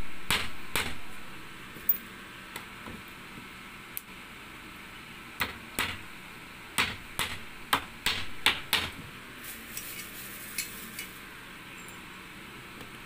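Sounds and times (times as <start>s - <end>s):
hammer striking nails into wood: 0.3s - 1.1s, 5.4s - 6.1s, 6.8s - 9.0s.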